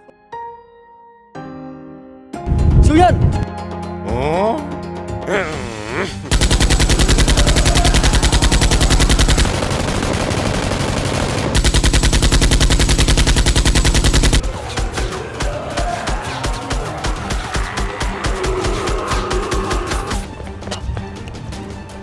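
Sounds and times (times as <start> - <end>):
rapid automatic gunfire: 6.3 - 18.9.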